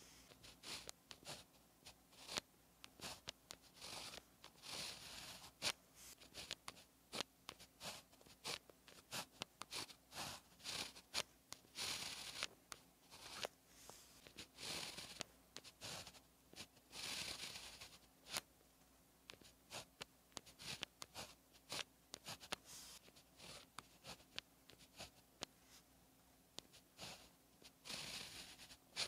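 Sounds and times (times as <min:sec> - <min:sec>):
pen scratching on paper: 0:00.0 - 0:18.5, 0:19.3 - 0:25.8, 0:26.6 - 0:29.0.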